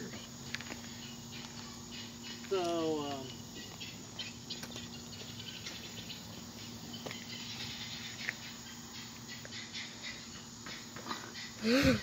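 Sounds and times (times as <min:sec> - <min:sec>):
footsteps on asphalt: 0:00.0 - 0:09.6.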